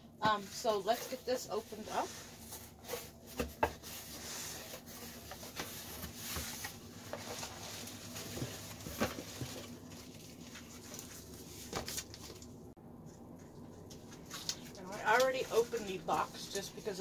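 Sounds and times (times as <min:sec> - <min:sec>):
cardboard scraping and rustling: 0:00.6 - 0:12.4.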